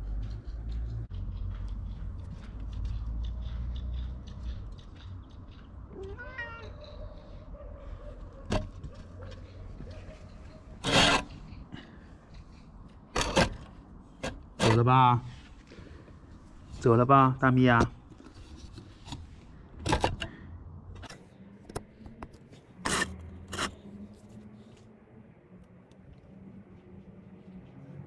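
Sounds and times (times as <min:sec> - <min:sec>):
cat meowing: 0:06.0 - 0:07.0.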